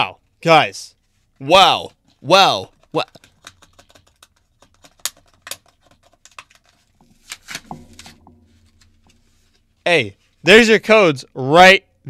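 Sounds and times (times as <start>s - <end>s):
paper peeled off plastic blister pack: 5.4s - 8.1s.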